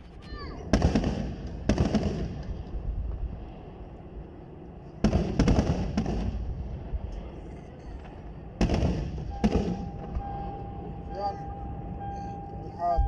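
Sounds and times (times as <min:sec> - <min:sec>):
low rumble: 0:00.0 - 0:13.0
steady single tone: 0:09.2 - 0:13.0.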